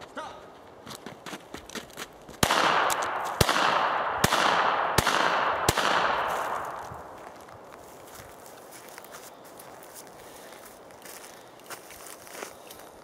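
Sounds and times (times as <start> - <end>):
pistol shots with echo: 2.4 - 6.9.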